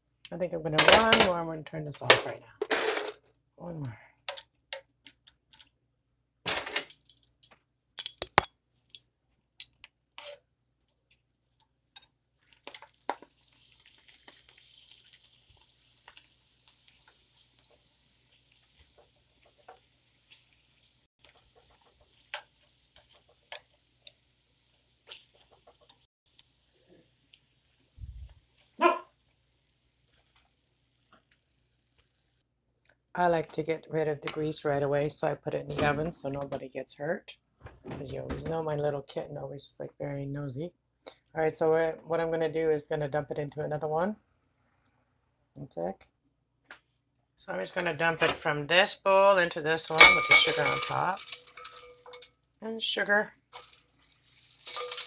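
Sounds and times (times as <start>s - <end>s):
oil sizzling: 8.2s - 32.4s, 47.5s - 55.0s.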